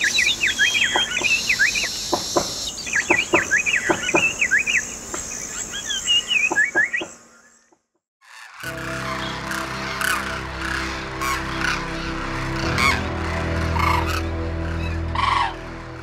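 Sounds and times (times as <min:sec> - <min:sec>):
birds chirping: 0:00.0 - 0:16.0
high insect drone: 0:08.5 - 0:16.0.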